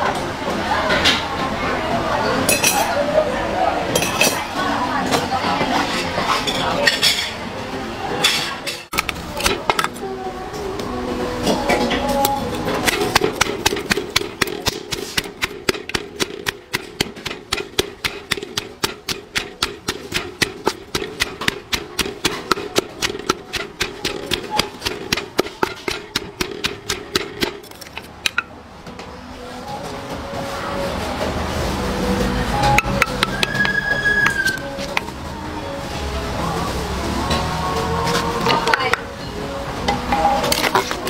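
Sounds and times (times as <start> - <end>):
pestle pounding in mortar: 12.5 - 28.6, 32.6 - 35.2.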